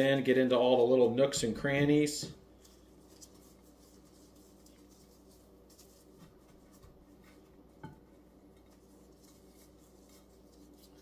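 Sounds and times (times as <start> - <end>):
gloved hands rubbing meat: 2.5 - 11.0.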